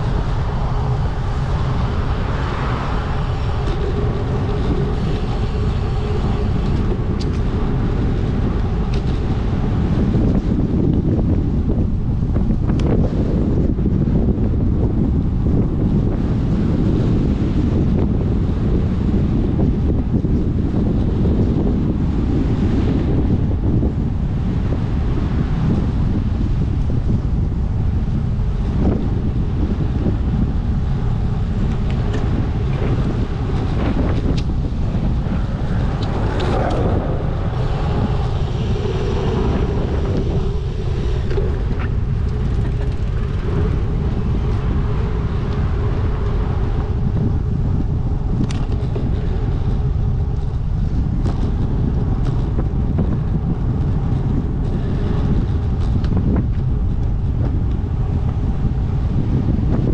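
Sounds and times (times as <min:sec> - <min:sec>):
road traffic passing: 0:00.0 - 0:10.9, 0:28.1 - 0:59.2
wind buffeting microphone: 0:00.0 - 0:59.9.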